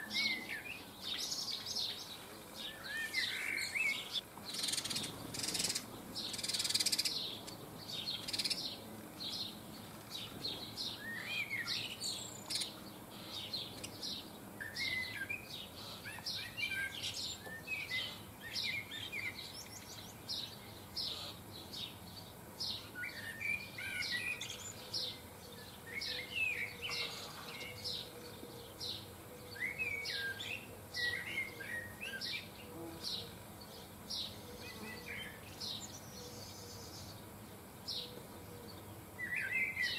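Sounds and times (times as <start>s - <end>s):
songbirds chirping: 0.0s - 39.9s.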